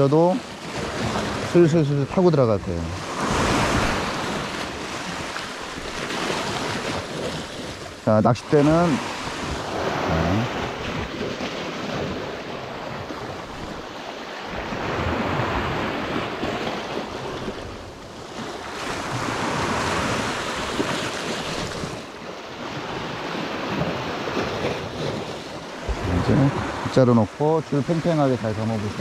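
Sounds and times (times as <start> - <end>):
sea surf washing against rocks: 0.0 - 29.0
wind on microphone: 22.8 - 27.0.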